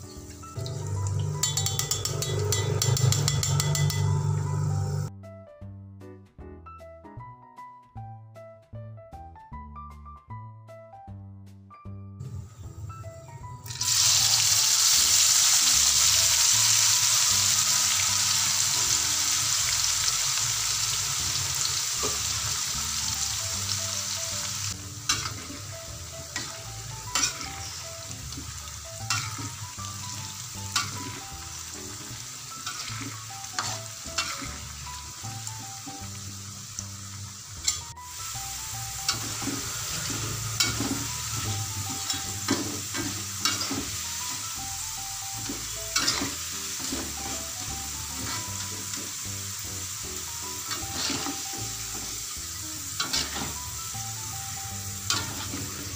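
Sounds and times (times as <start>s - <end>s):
potatoes sizzling in oil: 0.0s - 5.1s, 13.6s - 55.9s
spatula scraping a wok: 0.7s - 5.1s, 24.9s - 35.0s, 39.1s - 44.0s, 45.4s - 49.2s, 50.7s - 53.7s, 54.9s - 55.9s.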